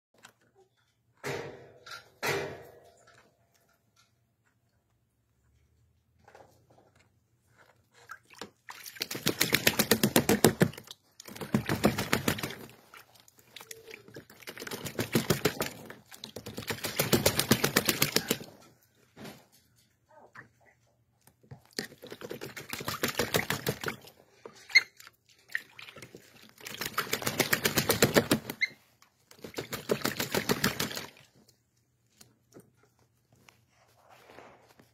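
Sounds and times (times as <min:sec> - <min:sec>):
bird splashing in water: 0:08.1 - 0:18.5, 0:21.8 - 0:28.7, 0:29.3 - 0:31.3.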